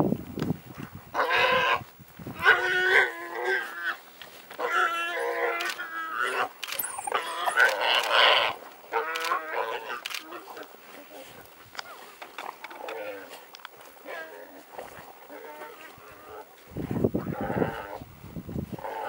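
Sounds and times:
warthog squealing: 4.6s - 10.0s.

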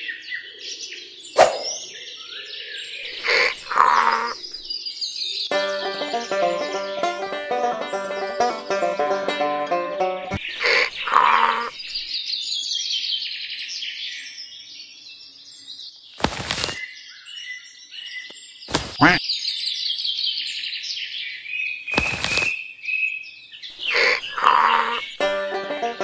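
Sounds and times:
small birds chirping: 0.0s - 5.5s, 10.3s - 25.2s.

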